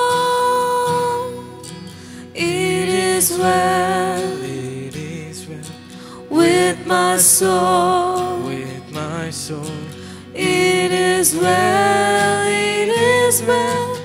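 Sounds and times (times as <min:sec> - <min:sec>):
person singing worship song: 0:00.0 - 0:14.0.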